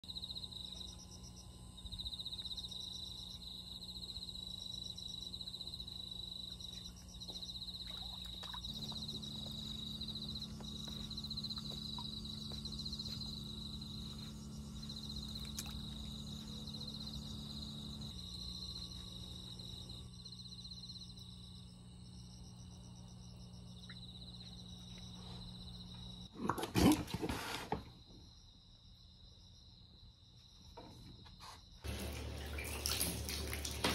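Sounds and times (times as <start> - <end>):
low steady hum: 0.0 - 26.3, 31.8 - 33.9
night insects chirping: 0.0 - 33.9.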